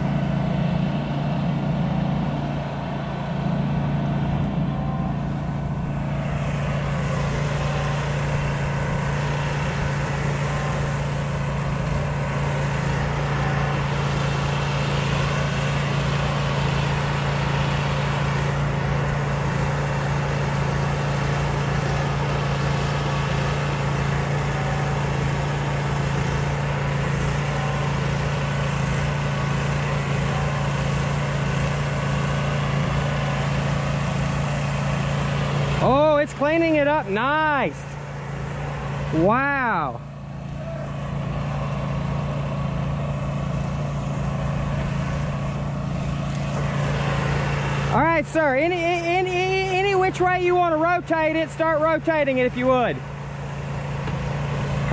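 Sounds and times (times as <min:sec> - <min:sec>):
pressure washer engine running: 0:00.0 - 0:54.9
water spray hissing on a dome: 0:06.0 - 0:37.2, 0:40.9 - 0:48.0.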